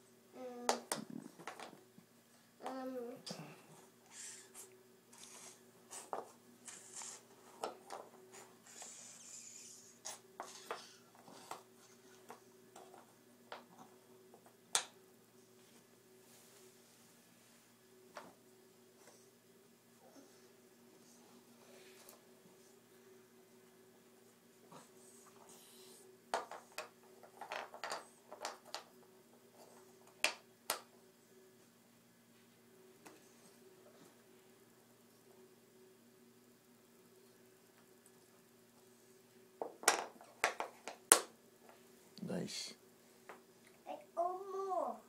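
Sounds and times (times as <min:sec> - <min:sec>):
wooden puzzle pieces tapping: 0:26.3 - 0:28.9, 0:39.6 - 0:41.3.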